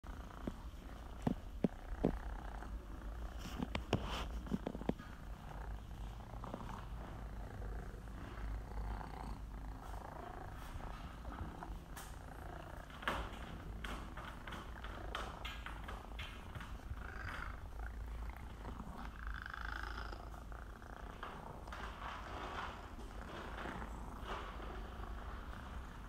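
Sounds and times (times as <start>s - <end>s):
cat purring: 0.0s - 26.0s.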